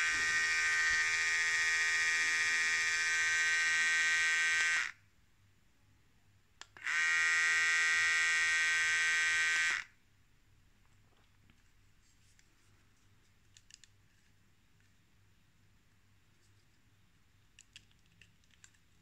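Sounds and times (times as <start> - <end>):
electric hair clipper buzzing: 0.0 - 5.0, 6.8 - 9.9.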